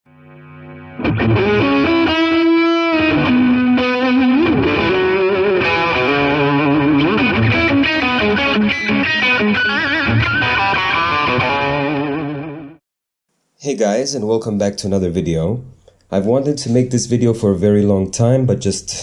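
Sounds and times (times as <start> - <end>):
distorted electric guitar music: 0.1 - 12.8.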